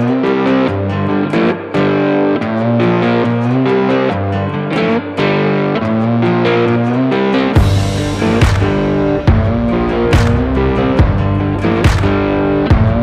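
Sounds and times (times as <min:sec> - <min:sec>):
plucked guitar melody: 0:00.0 - 0:13.0.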